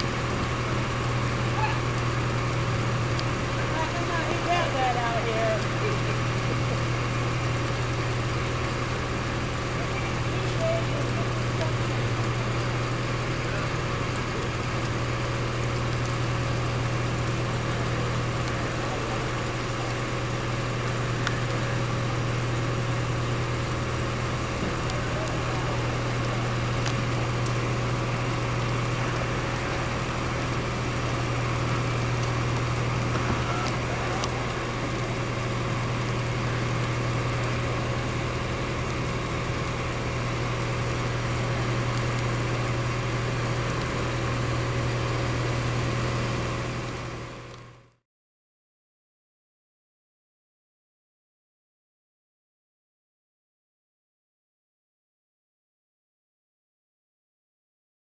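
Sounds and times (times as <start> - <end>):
fire engine motors droning: 0.0 - 48.0
steady pump hum: 0.0 - 48.0.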